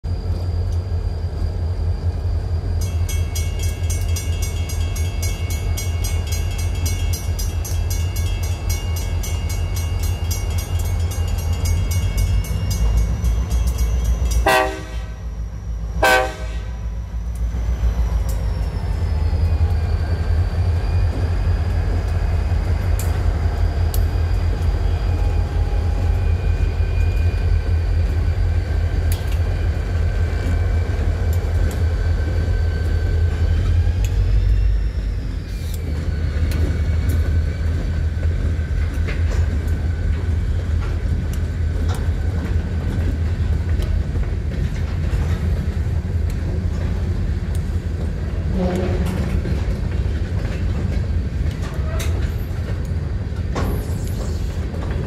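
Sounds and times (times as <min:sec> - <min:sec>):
diesel locomotives rumbling: 0:00.0 - 0:55.0
crossing warning bell ringing: 0:02.7 - 0:21.7
locomotive horn blasts: 0:14.4 - 0:15.3, 0:16.0 - 0:16.9, 0:48.5 - 0:49.4.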